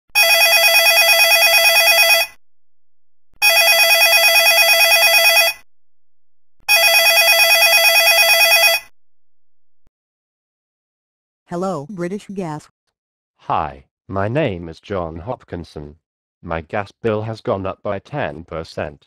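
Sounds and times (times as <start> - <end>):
telephone ringing with warble: 0.2 - 2.4, 3.4 - 5.6, 6.7 - 8.9.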